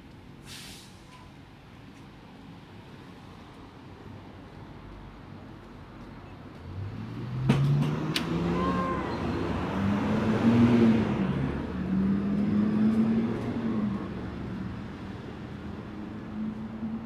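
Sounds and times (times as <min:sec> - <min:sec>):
vehicle engine accelerating: 0:06.6 - 0:17.0.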